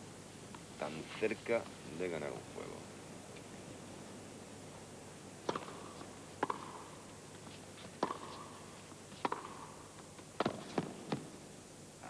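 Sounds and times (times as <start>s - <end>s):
racket striking tennis ball: 5.4s - 7.0s, 7.9s - 11.4s
ball bouncing: 5.5s - 6.9s, 8.0s - 8.6s, 9.2s - 9.7s, 10.4s - 11.3s.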